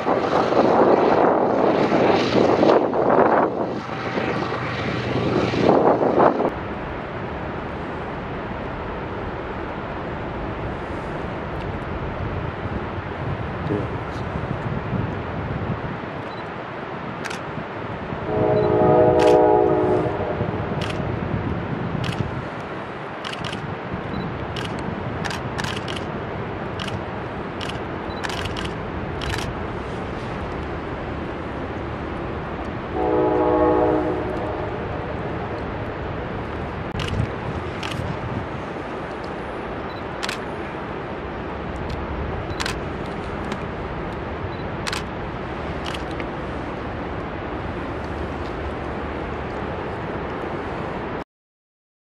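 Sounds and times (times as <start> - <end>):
camera shutter clicks: 17.2 - 17.5, 23.2 - 23.6, 24.6 - 26.1, 26.8 - 27.0, 27.6 - 29.5, 37.0 - 38.1, 40.2 - 40.5, 42.5 - 42.8, 44.8 - 45.1, 45.8 - 46.2
waterfall roaring: 18.9 - 51.2.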